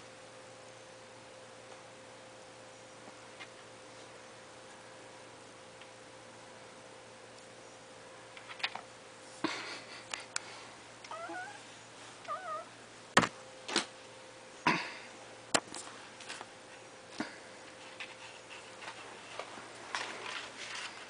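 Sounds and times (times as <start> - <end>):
kitten meowing: 11.1 - 11.6, 12.3 - 12.7.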